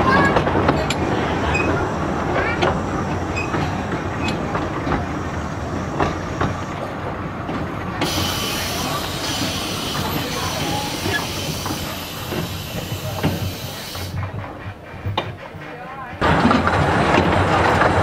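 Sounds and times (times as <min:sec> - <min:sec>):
train coaches rumbling: 0:00.0 - 0:18.0
wheels clicking on rails: 0:00.0 - 0:18.0
steam hissing: 0:08.0 - 0:15.8.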